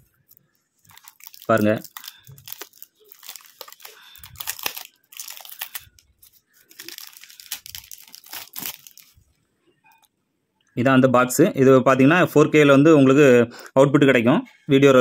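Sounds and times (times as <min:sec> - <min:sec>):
plastic wrapping crinkling: 0:00.0 - 0:09.4.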